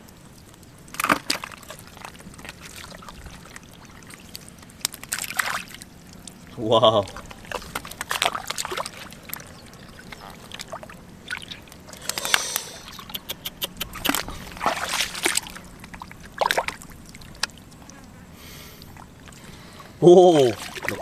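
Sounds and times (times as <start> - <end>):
hands splashing in muddy water: 0.9 - 5.9, 7.2 - 17.8, 20.4 - 21.0.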